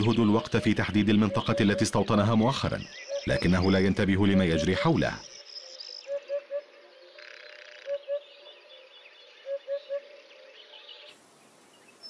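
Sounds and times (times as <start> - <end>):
hoopoe singing: 0.0 - 2.5.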